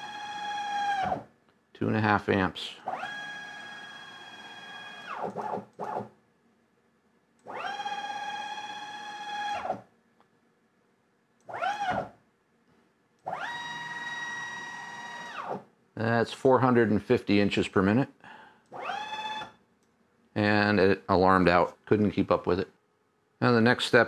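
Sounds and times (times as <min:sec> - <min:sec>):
stepper motor whining: 0:13.2 - 0:15.6, 0:18.7 - 0:19.5.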